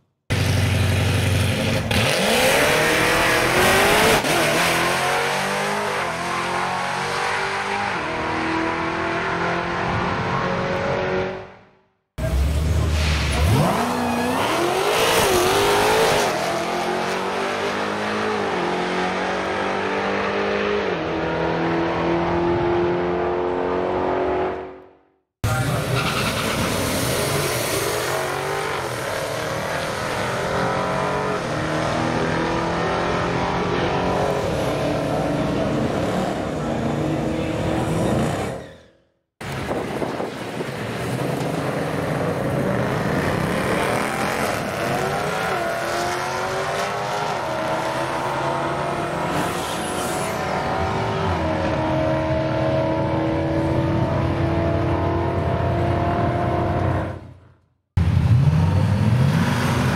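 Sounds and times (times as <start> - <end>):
drag car engines revving hard: 0.3 - 11.3, 12.2 - 24.6, 39.5 - 57.3, 58.0 - 59.9.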